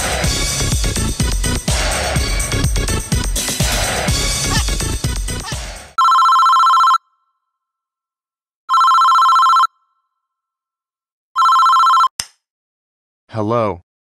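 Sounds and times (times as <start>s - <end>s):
music: 0.0s - 6.0s
phone ringtone trilling: 6.0s - 7.3s, 8.7s - 10.0s, 11.4s - 12.1s.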